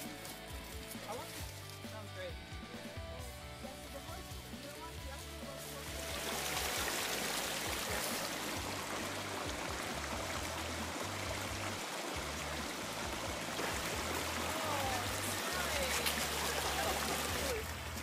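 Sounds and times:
shallow stream running: 3.9 - 18.0.

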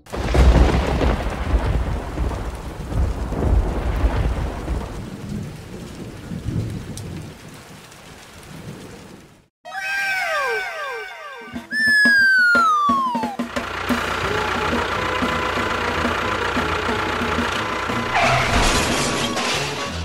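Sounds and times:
steady rain: 0.1 - 9.5, 13.5 - 20.0
thunder rumbling: 0.1 - 9.5.

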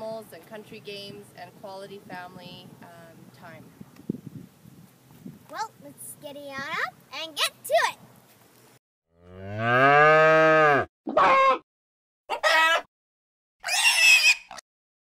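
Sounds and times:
cow mooing: 9.2 - 11.6.

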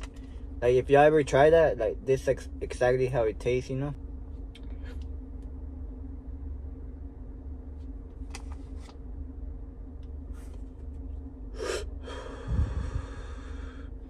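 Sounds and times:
steady low hum: 0.0 - 14.0
sharp breath: 11.6 - 13.9
long exhale: 11.6 - 14.0.

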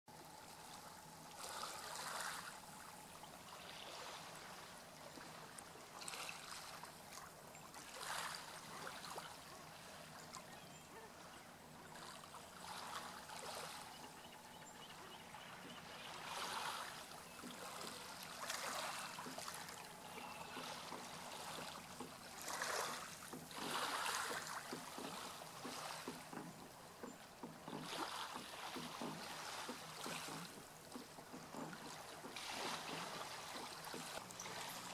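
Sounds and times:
oars splashing in water: 0.2 - 34.9.

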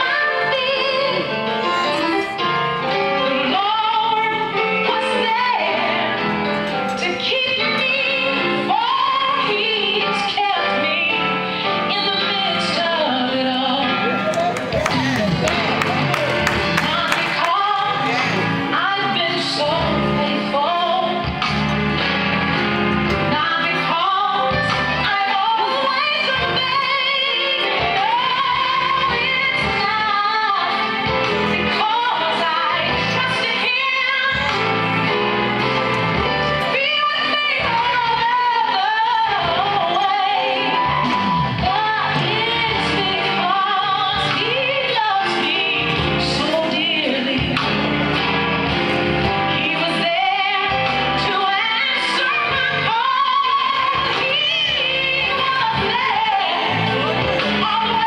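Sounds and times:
instrumental backing: 0.0 - 58.0
woman singing gospel: 7.0 - 15.8, 16.6 - 21.3, 23.3 - 31.1, 31.7 - 34.7, 36.6 - 47.7, 49.5 - 56.9.

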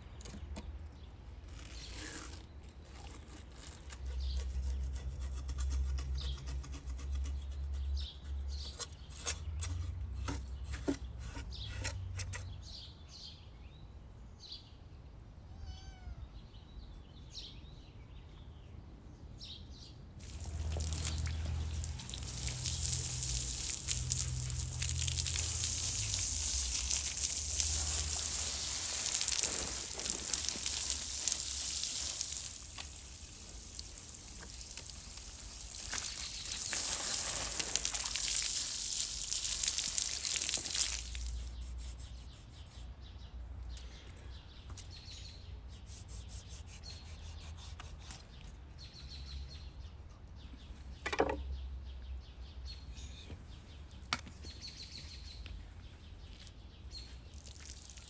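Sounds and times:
hose water spraying and splashing: 20.2 - 42.1, 57.4 - 58.0.

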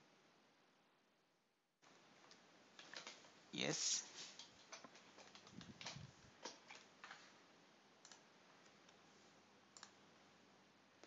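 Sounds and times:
computer mouse clicks: 8.0 - 9.0, 9.7 - 10.0.

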